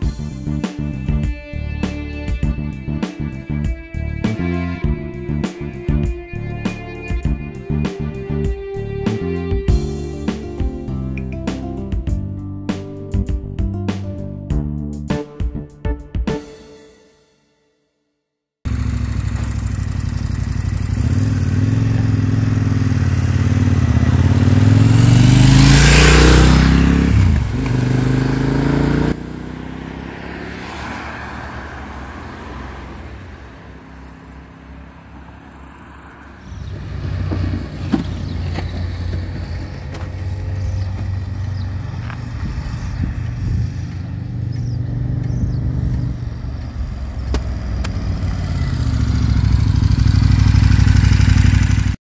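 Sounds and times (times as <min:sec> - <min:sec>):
faint traffic: 0:18.7 - 0:52.0
motorcycle approaching at low revs: 0:18.7 - 0:52.0
motorcycle engine passing: 0:18.7 - 0:52.0.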